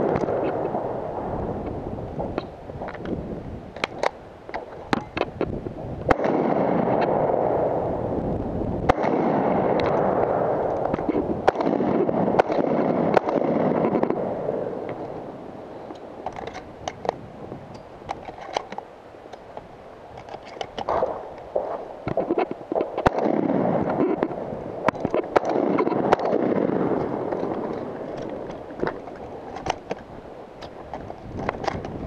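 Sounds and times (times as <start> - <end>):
wind rushing on camera: 0.0 - 32.0
gunshot cracks: 6.1 - 7.7, 8.9 - 10.5, 11.4 - 14.3, 23.0 - 24.1, 25.3 - 27.2.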